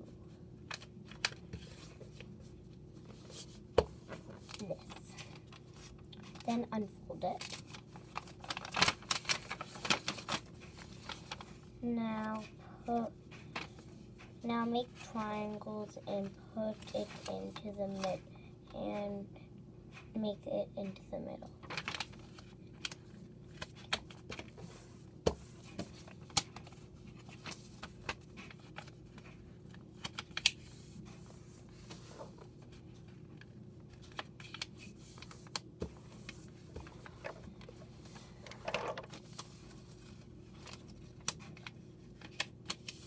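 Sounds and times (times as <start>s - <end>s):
faint steady hum: 0.0s - 43.0s
paper rustling and crinkling: 0.7s - 6.6s, 7.3s - 11.7s, 21.6s - 43.0s
paper being folded and creased: 0.7s - 11.7s, 21.6s - 43.0s.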